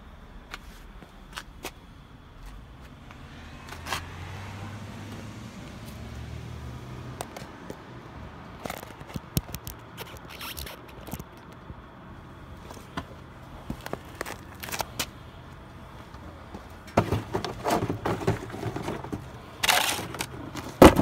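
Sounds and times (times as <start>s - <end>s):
cardboard boxes scraping and knocking: 16.9s - 21.0s.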